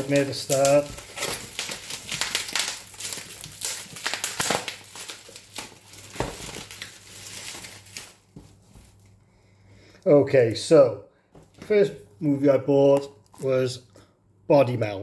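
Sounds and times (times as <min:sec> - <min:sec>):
packaging crinkling: 0:00.0 - 0:09.2.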